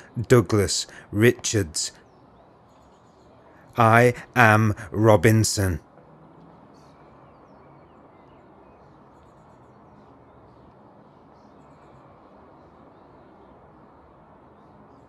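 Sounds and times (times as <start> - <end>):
low background hum: 0.0 - 15.0
faint bird chirps: 6.6 - 15.0.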